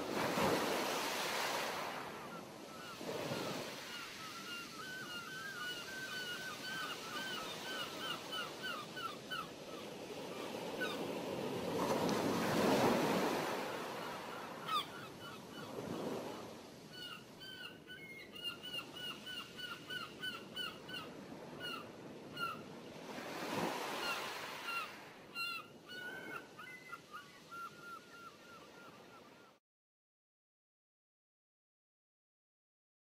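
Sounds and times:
waves washing ashore: 0.0s - 4.5s, 9.5s - 14.6s, 21.1s - 25.3s.

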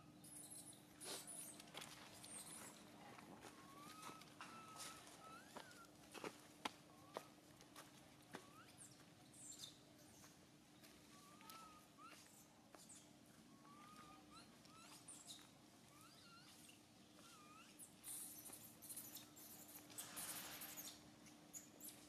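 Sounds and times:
squeaky animal chirps: 3.7s - 5.8s, 13.7s - 16.6s, 17.2s - 18.4s.

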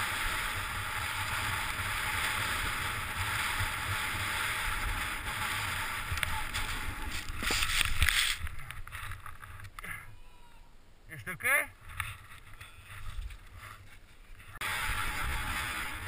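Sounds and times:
sliding through deep snow: 0.0s - 8.4s, 12.9s - 16.0s
person falling into snow: 0.0s - 8.6s, 14.6s - 16.0s
wind rumbling on microphone: 0.0s - 9.7s, 11.8s - 16.0s.

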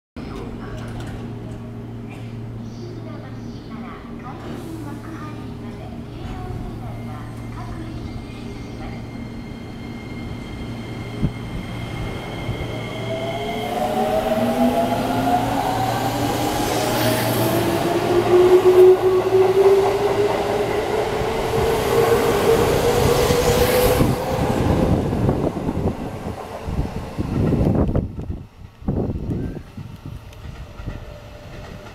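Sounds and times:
train wheel and rail noise: 0.2s - 31.9s.

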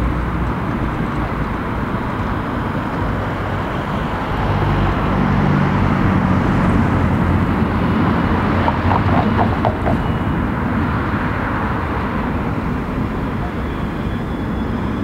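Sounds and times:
low engine hum: 0.0s - 15.0s
street traffic: 0.0s - 15.0s.

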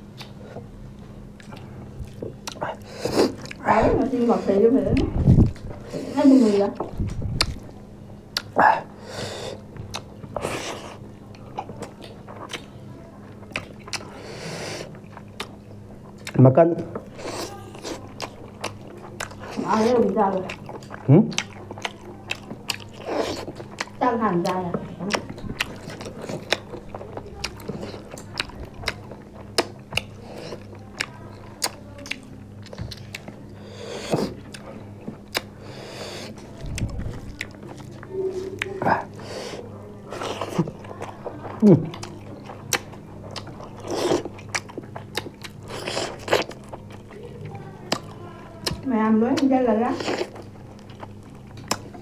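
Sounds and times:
faint low hum: 0.0s - 52.0s
people chewing food: 0.0s - 52.0s.

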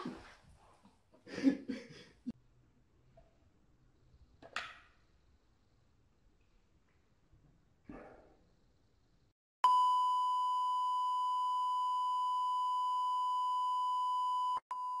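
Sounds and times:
steady test tone beep: 9.6s - 15.0s.

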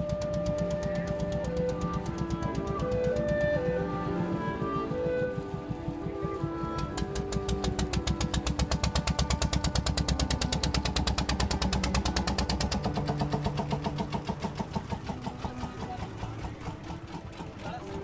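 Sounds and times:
boat diesel engine chugging: 0.0s - 18.0s.

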